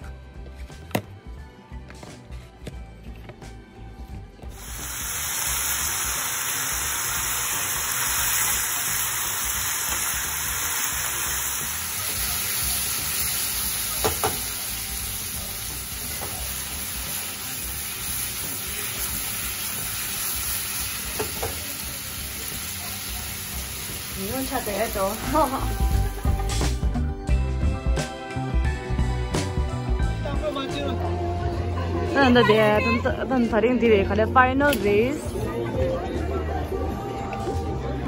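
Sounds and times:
vegetables sizzling in a wok: 4.5 - 26.8.

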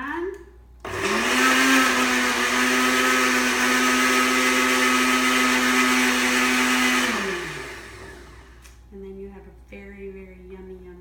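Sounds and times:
electric blender running: 0.9 - 8.6.

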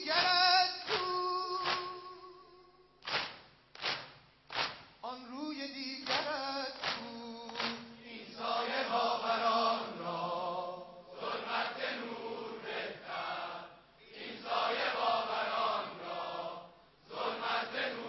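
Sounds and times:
crowd beating chests in unison: 0.0 - 2.2, 3.0 - 5.0, 6.0 - 8.0
voices chanting a lamentation: 6.0 - 18.0.

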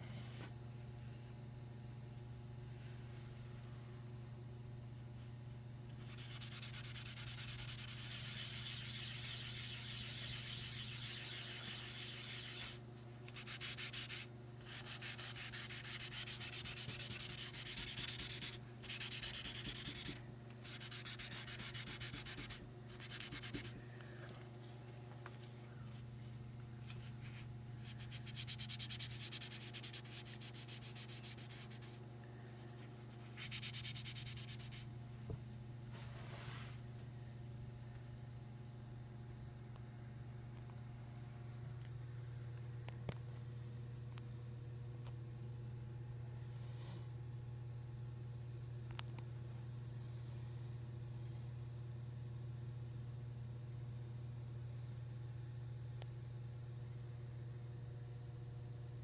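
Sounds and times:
pencil scratching on paper: 6.0 - 12.8, 13.4 - 23.7.

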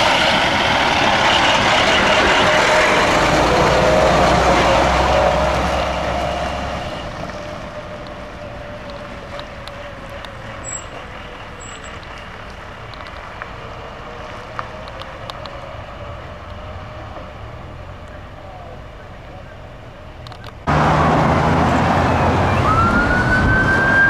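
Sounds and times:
distant drone: 0.0 - 24.0
fire truck engine passing: 0.0 - 24.0.

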